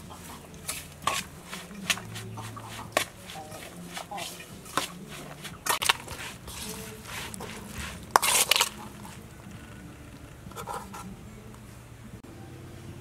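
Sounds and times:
spoon scraping bowl: 0:00.0 - 0:09.4, 0:10.5 - 0:11.1.

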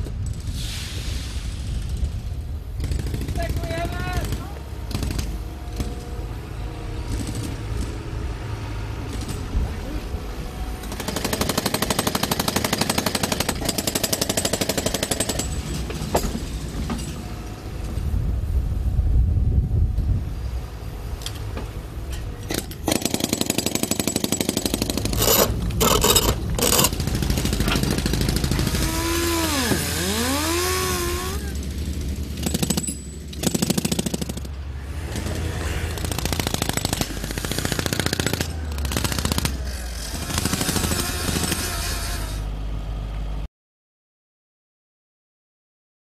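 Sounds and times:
jackhammer hammering concrete: 0:02.8 - 0:06.0, 0:07.1 - 0:08.0, 0:10.8 - 0:16.3, 0:22.5 - 0:42.3.

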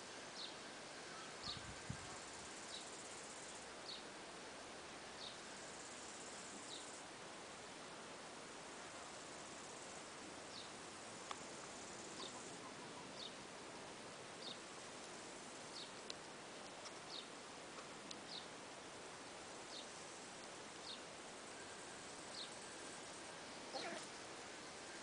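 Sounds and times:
faint hiss: 0:00.0 - 0:25.0
faint clicks: 0:11.2 - 0:11.4
bird chirping: 0:12.1 - 0:13.4, 0:15.7 - 0:16.0, 0:18.3 - 0:18.5, 0:20.8 - 0:21.7.

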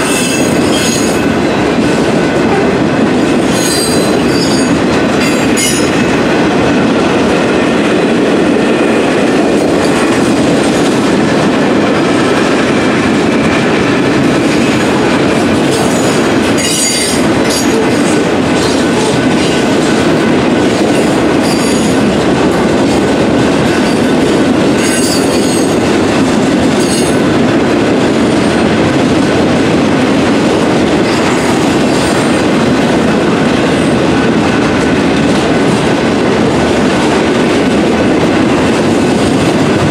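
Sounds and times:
clickety-clack of rail joints: 0:00.0 - 0:39.9
steel wheels rumbling on rails: 0:00.0 - 0:39.9
high wheel squeals: 0:03.5 - 0:05.8.

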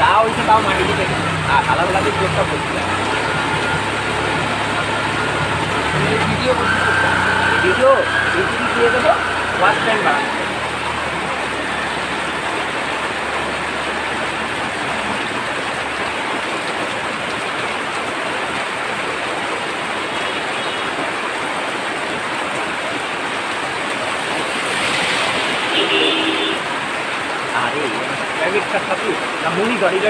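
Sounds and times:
heavy rain: 0:00.0 - 0:30.0.

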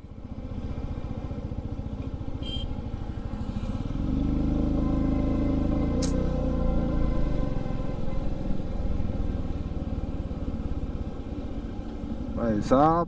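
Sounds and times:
motorcycle engine running: 0:00.0 - 0:13.0
short click: 0:06.0 - 0:06.3.

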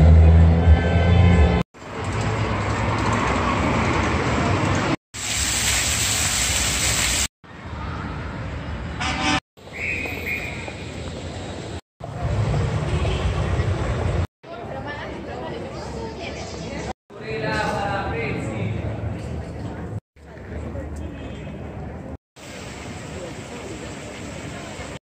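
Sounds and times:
traffic noise: 0:00.0 - 0:25.0
fountain water splashing: 0:05.2 - 0:07.3, 0:22.4 - 0:25.0
vehicle horn toots: 0:09.0 - 0:09.4.

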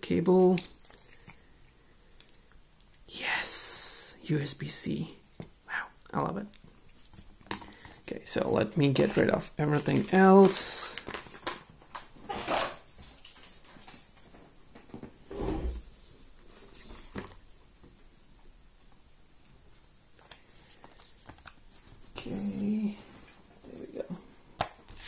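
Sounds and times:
cardboard and paper rustling: 0:09.0 - 0:14.4.

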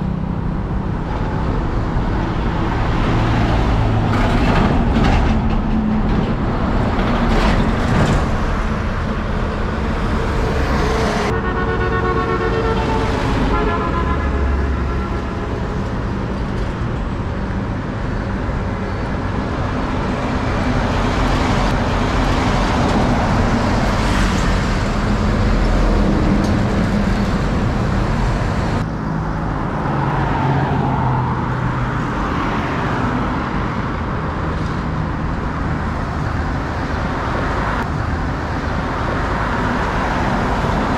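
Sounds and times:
highway traffic passing: 0:00.0 - 0:40.9
vehicle horn: 0:11.2 - 0:15.8.

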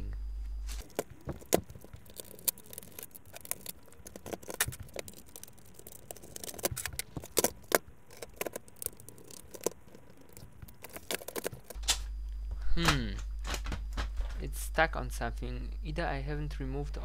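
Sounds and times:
plastic printer parts clicking: 0:00.8 - 0:12.0.

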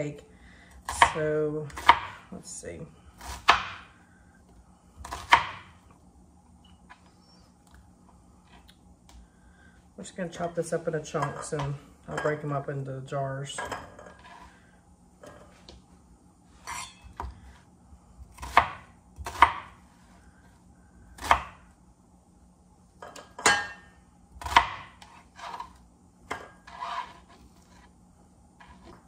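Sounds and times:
knife chopping onion on board: 0:00.9 - 0:02.2, 0:03.2 - 0:03.9, 0:05.0 - 0:05.7, 0:18.3 - 0:19.8, 0:21.2 - 0:21.6, 0:24.4 - 0:25.7.

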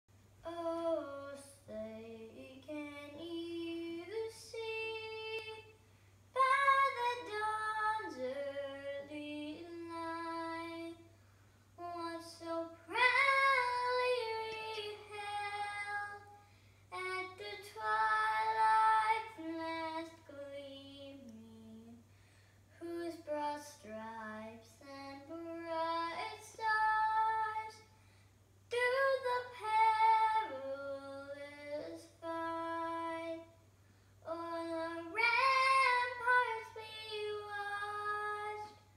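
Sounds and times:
girl singing unaccompanied: 0:00.4 - 0:28.0, 0:28.6 - 0:38.9
girl breathing: 0:05.8 - 0:06.3, 0:11.1 - 0:11.8, 0:16.3 - 0:16.9, 0:22.0 - 0:22.8, 0:27.9 - 0:28.5, 0:33.7 - 0:34.2.

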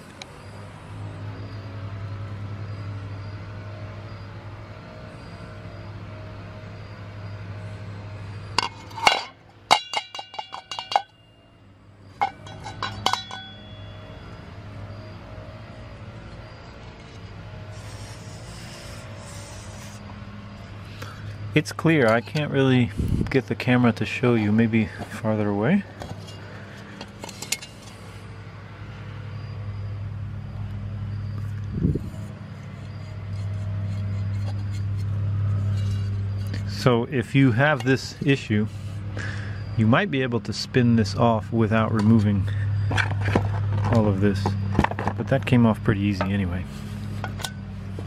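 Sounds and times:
low mechanical hum: 0:00.0 - 0:48.0
metal parts clinking: 0:08.6 - 0:11.2, 0:12.2 - 0:13.8, 0:25.9 - 0:28.0.

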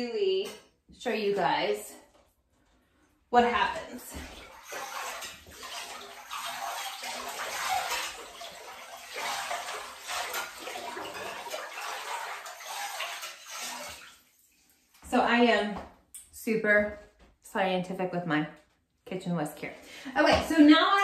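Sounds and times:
whisk stirring bathwater: 0:03.4 - 0:15.1.

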